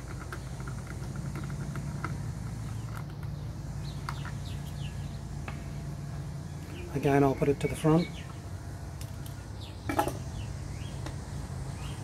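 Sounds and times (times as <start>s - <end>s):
steady low hum: 0.0s - 12.0s
bird chirps: 2.6s - 5.2s, 6.4s - 8.5s.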